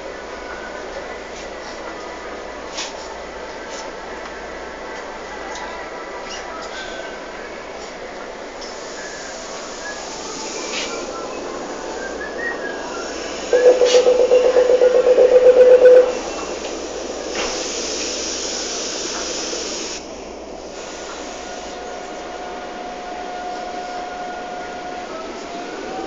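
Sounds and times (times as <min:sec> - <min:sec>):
hiss: 0:08.6 - 0:22.6
rapidly pulsing warning tone: 0:13.5 - 0:16.3.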